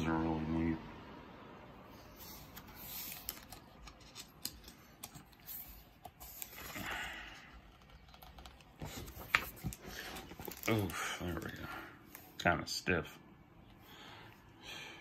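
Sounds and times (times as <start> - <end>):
book pages turning: 2.2 - 12.3.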